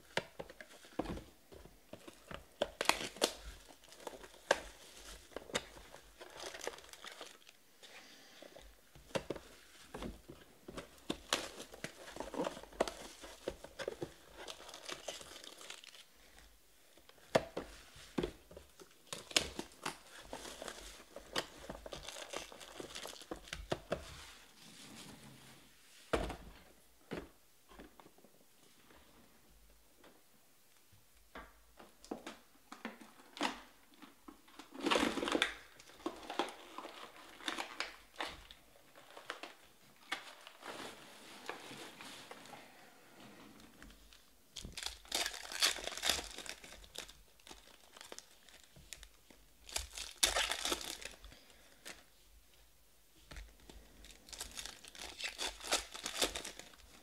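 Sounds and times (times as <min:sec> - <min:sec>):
plastic wrap crinkling and tearing: 0:00.0 - 0:07.6, 0:09.1 - 0:24.3, 0:33.3 - 0:42.5, 0:43.8 - 0:52.1, 0:53.3 - 0:57.0
foil packs rustling: 0:09.1 - 0:16.1, 0:44.7 - 0:49.0, 0:49.6 - 0:52.0, 0:54.0 - 0:57.0.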